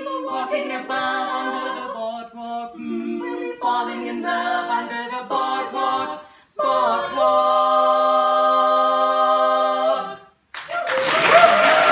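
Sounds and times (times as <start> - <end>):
women singing a cappella harmony: 0.0 - 10.5
audience applause: 10.5 - 11.9.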